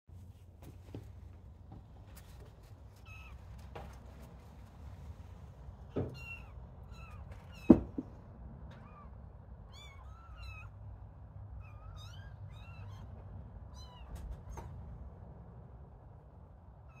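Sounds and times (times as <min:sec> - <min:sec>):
knock: 0:07.6 - 0:08.2
kittens mewing: 0:08.7 - 0:10.8.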